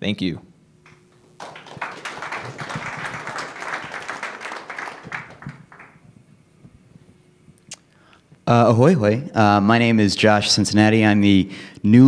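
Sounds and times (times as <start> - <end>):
audience applauding: 1.3 - 6.0.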